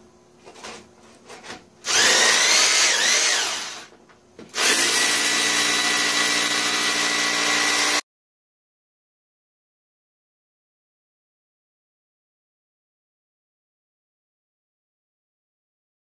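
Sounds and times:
drill boring into rock: 1.8 - 3.9, 4.6 - 8.0.

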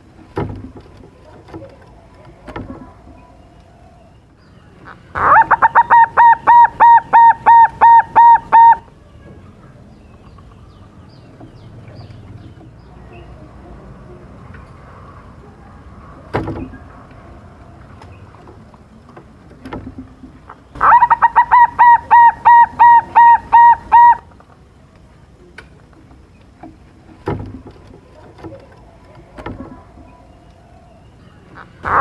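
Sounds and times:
dove cooing: 5.2 - 8.9, 20.8 - 24.3, 31.6 - 32.0.

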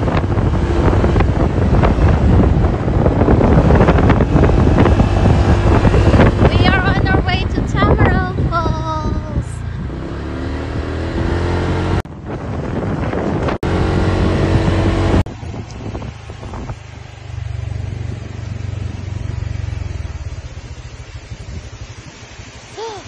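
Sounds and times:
small motorbike engine running: 0.0 - 8.0, 13.7 - 22.7
wind noise on microphone: 0.0 - 23.0.

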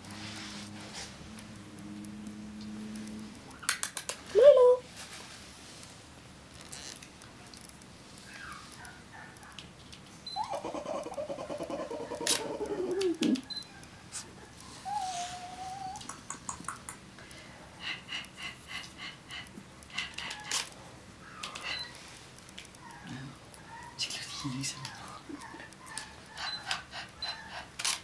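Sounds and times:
puppy growl-like whine: 10.3 - 13.5
puppy whimpering: 10.3 - 13.6, 14.7 - 16.3, 22.8 - 27.7.

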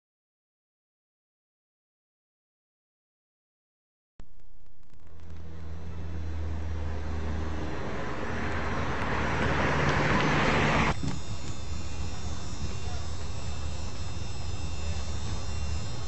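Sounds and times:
low steady hum: 4.2 - 16.0
motor vehicle noise: 4.6 - 16.0.

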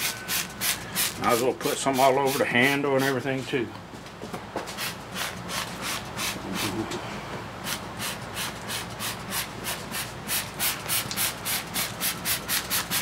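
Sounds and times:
spray bottle hissing spritzes: 7.6 - 13.0.

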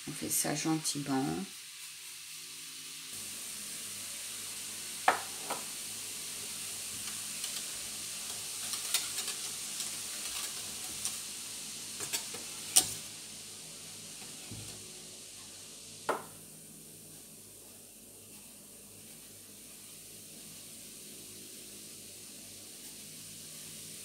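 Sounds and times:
fizzing solution hissing: 0.5 - 15.2.

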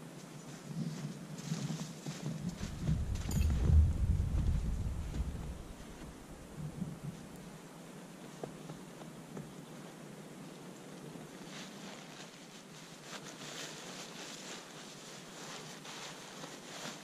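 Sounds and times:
faint steady hiss: 0.0 - 17.0
tarp rustling: 1.4 - 6.5, 11.3 - 17.0.

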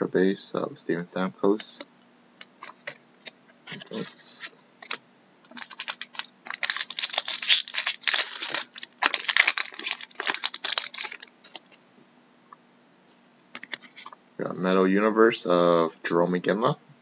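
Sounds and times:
foil wrapper crinkling: 3.7 - 11.8.

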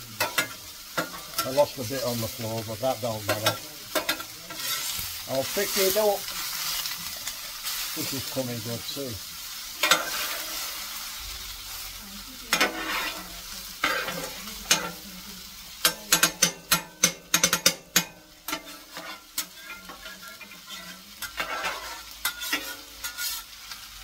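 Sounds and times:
onions sizzling on griddle: 0.0 - 24.0
metal utensil scraping plate: 3.2 - 5.0, 9.8 - 10.6, 12.5 - 15.0, 15.8 - 23.6.

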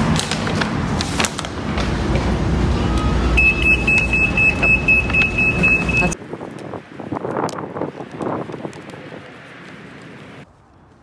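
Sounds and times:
security gate alarm tone: 2.9 - 6.2.

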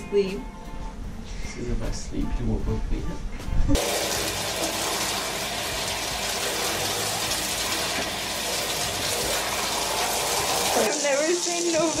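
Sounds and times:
shower spray running: 3.8 - 12.0
water splashing on tiled floor: 3.8 - 12.0.

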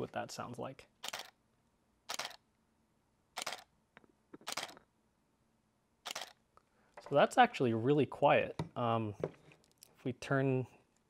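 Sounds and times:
quiet camera shutter releases: 1.0 - 1.4, 2.1 - 2.4, 3.4 - 3.7, 4.4 - 4.8, 6.1 - 6.4.

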